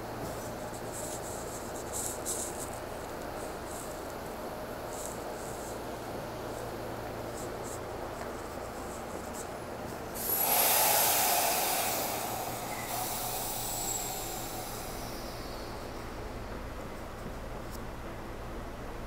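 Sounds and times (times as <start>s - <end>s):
compressed air hiss from train: 10.0s - 17.2s.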